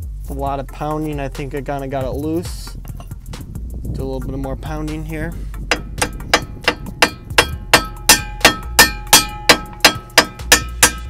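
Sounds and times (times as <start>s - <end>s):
hammer striking metal: 5.7s - 11.0s.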